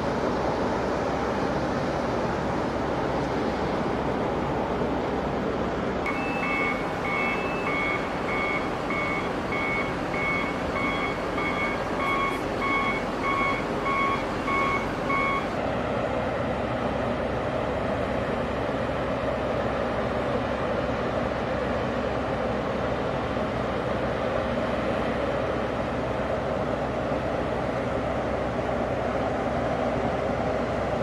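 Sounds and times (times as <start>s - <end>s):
diesel engine running: 0.0s - 31.0s
reversing alarm beeping: 6.1s - 15.6s.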